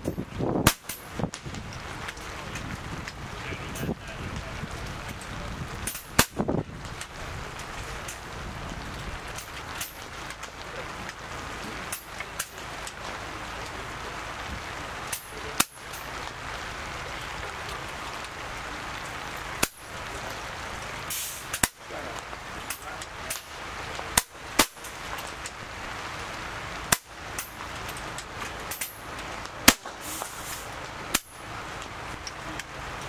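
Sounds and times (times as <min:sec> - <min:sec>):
steady background hiss: 0:00.0 - 0:33.0
air rifle shots: 0:00.6 - 0:01.0, 0:29.6 - 0:30.4.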